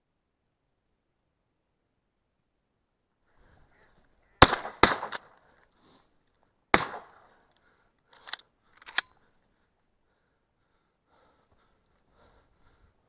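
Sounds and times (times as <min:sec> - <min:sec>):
shotgun blasts: 0:04.4 - 0:05.4, 0:06.7 - 0:07.3
short sharp cracks: 0:04.4 - 0:05.7, 0:06.7 - 0:09.1.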